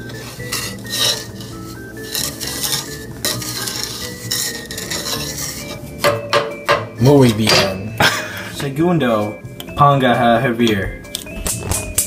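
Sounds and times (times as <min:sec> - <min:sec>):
wooden spoon scraping metal pan: 0:00.0 - 0:07.8.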